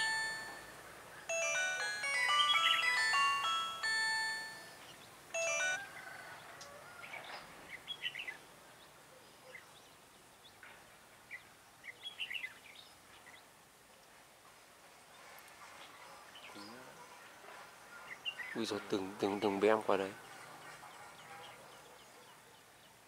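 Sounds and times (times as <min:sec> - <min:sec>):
chiming electronic tune: 0:00.0 - 0:06.0
birds chirping: 0:00.0 - 0:10.6, 0:15.8 - 0:23.0.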